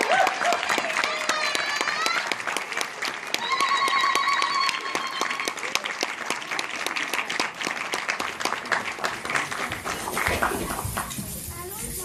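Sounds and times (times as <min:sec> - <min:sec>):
high-pitched cheer: 0:00.0 - 0:02.6, 0:03.3 - 0:05.8
audience clapping: 0:00.0 - 0:11.8.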